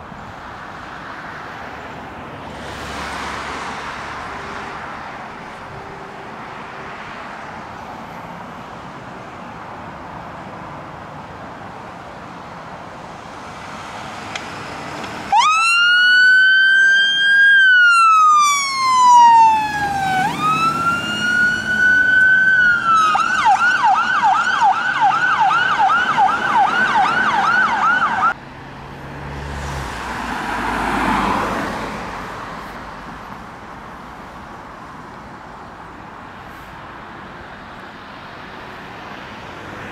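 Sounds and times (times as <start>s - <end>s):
engine and traffic noise: 0.0s - 39.9s
vehicle passing: 1.0s - 8.4s, 13.0s - 33.1s
fire engine siren wailing and yelping: 15.3s - 28.4s.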